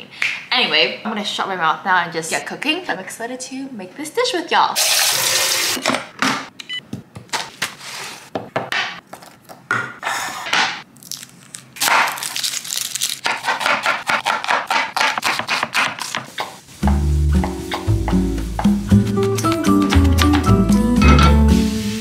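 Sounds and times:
onion skin crinkling: 0:10.9 - 0:16.6
knife chopping on wooden board: 0:13.2 - 0:20.5.

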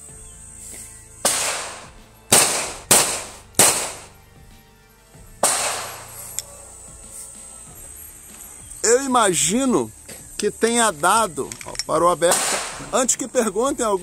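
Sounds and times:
pistol shots: 0:01.2 - 0:04.1, 0:05.4 - 0:06.2, 0:12.2 - 0:13.2
pistol slide locking open: 0:11.5 - 0:11.9.

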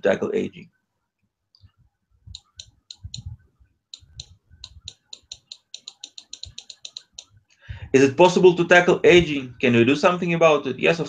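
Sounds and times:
computer mouse clicking: 0:02.3 - 0:03.3, 0:04.0 - 0:07.3.

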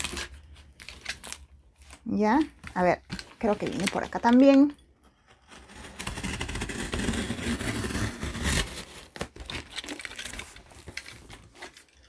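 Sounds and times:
cardboard rustling: 0:05.4 - 0:12.0
box cutter scraping tape: 0:05.5 - 0:10.6.

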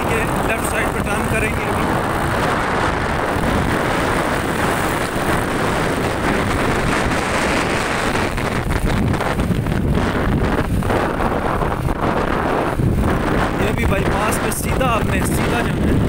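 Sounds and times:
motorcycle running: 0:00.0 - 0:16.0
road noise: 0:00.0 - 0:16.0
wind rushing over microphone: 0:00.0 - 0:16.0.

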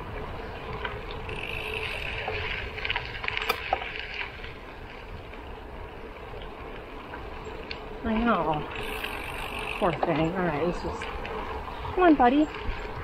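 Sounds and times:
bike tyres rolling on gravel: 0:00.0 - 0:13.0
wind rumble on microphone: 0:00.0 - 0:13.0
crackling clicks: 0:00.7 - 0:05.4, 0:06.3 - 0:10.4.

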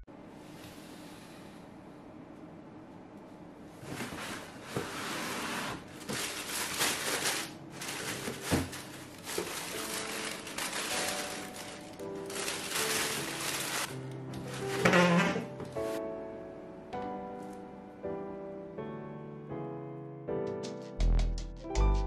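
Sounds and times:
tissue paper rustling: 0:03.8 - 0:16.0.

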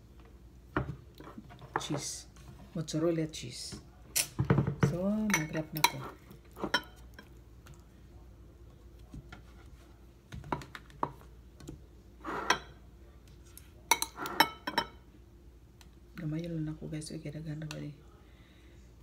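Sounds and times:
cutlery clinking on ceramic plate: 0:13.9 - 0:15.0.

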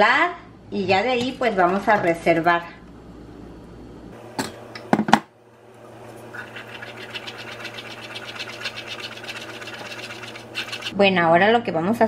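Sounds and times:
spoon scraping wire strainer: 0:06.3 - 0:11.0.

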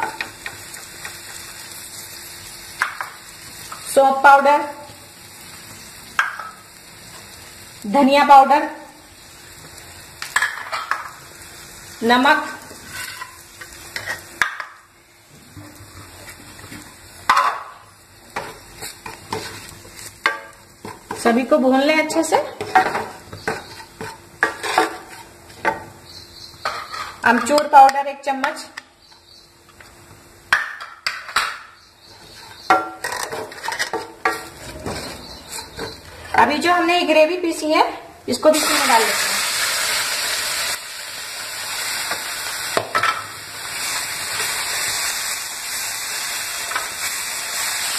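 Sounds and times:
utensils knocking on frying pan: 0:06.2 - 0:06.6, 0:32.6 - 0:36.5
wooden spoon scraping a pan: 0:12.7 - 0:13.4, 0:18.4 - 0:20.0, 0:22.5 - 0:25.4, 0:26.6 - 0:27.6, 0:32.1 - 0:36.5.

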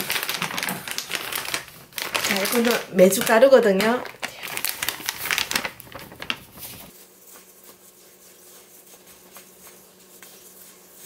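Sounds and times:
plastic bag crinkling: 0:00.0 - 0:06.9
gloved hands rustling powder: 0:02.1 - 0:11.0.

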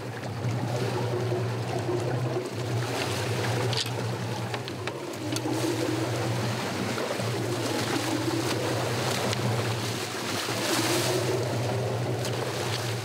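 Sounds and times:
boat engine droning: 0:00.0 - 0:13.0
water splashing along hull: 0:00.0 - 0:13.0.

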